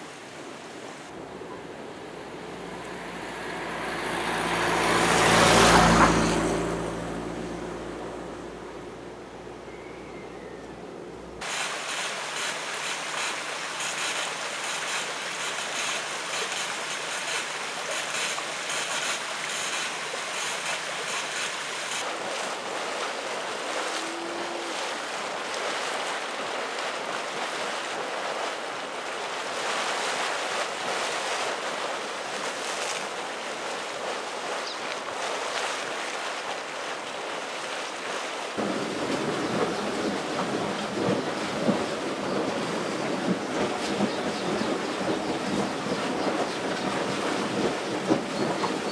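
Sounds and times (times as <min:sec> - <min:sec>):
steam venting hiss: 0:11.4 - 0:22.0
deep rumble: 0:38.6 - 0:48.6.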